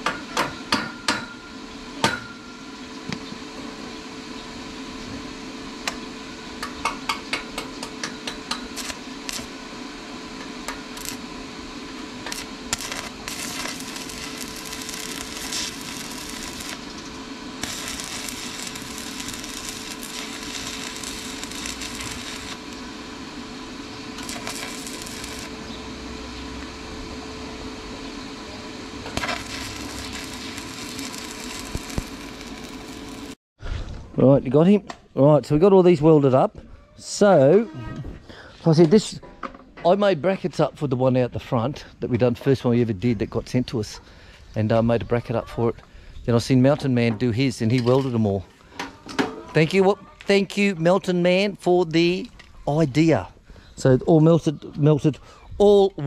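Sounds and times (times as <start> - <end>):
steady hum: 0.0 - 33.4
welding arc hissing: 0.0 - 33.4.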